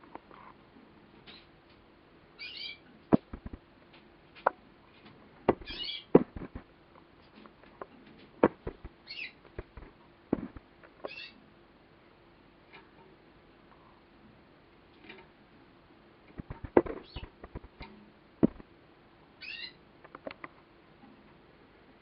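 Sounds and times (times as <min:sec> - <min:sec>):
canary chirping: 0:02.4 - 0:03.6, 0:05.6 - 0:06.6, 0:08.4 - 0:11.4, 0:16.4 - 0:17.8, 0:19.4 - 0:19.8
sharp clicks and taps: 0:03.1 - 0:03.6, 0:05.5 - 0:06.7, 0:08.4 - 0:11.1, 0:16.4 - 0:18.6.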